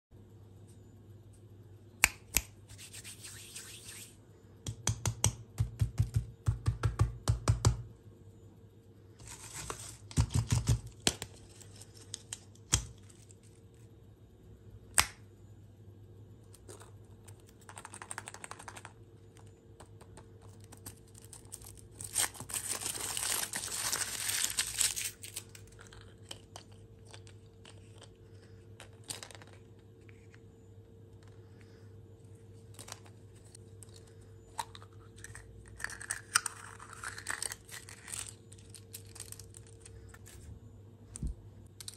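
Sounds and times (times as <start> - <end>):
foil crinkling and tearing: 21.0 - 25.8.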